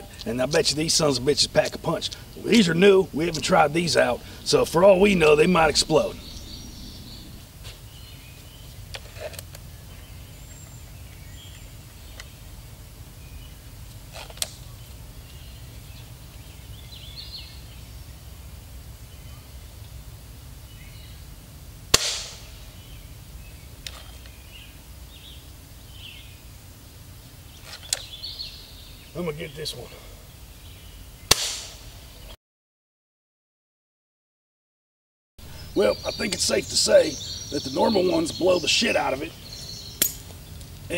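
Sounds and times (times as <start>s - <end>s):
birds chirping: 0.0s - 32.4s, 35.4s - 40.9s
air rifle shot crack: 21.9s - 22.6s, 31.3s - 31.9s.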